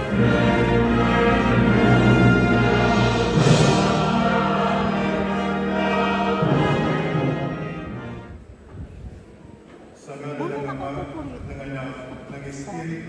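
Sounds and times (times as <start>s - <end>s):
choir singing sacred music: 0.0s - 8.4s.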